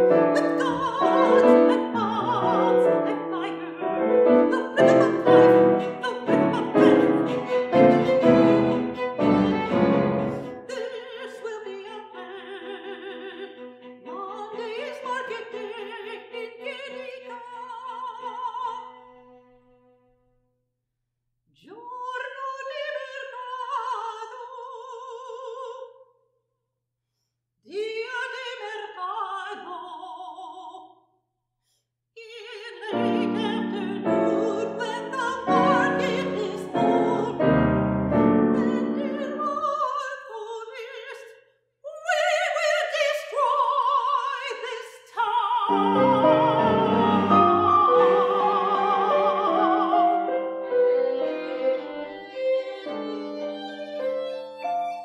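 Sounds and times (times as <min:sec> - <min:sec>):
loud piano chords: 0:00.0 - 0:10.5, 0:33.0 - 0:39.0, 0:45.7 - 0:51.6
soprano singing: 0:00.0 - 0:19.4, 0:32.2 - 0:41.3, 0:41.9 - 0:55.0.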